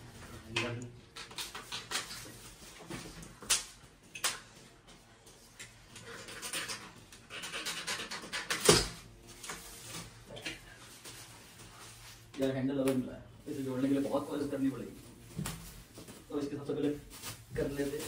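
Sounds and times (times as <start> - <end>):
packing material rustling: 13.4 - 18.0.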